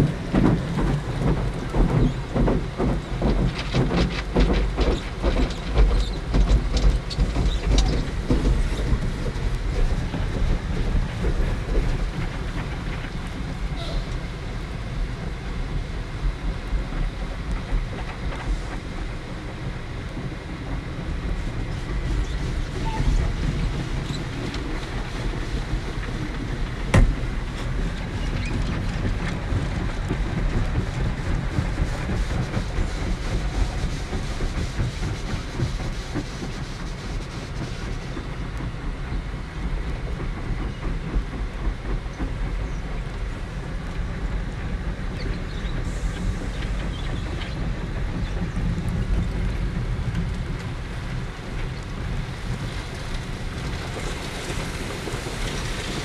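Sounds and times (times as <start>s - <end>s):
car wash water jets and brushes: 0.0s - 13.8s, 14.4s - 40.2s, 48.6s - 56.0s.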